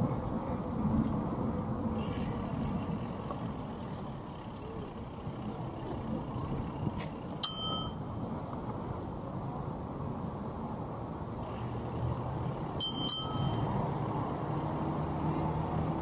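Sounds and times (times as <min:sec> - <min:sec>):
wind and tyres rushing: 0:00.0 - 0:16.0
bicycle bell ding: 0:07.4 - 0:08.1, 0:12.7 - 0:14.5.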